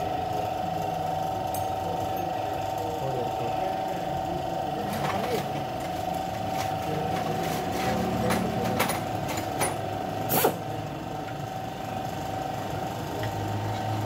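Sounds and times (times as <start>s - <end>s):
steady mechanical hum: 0.0s - 14.0s.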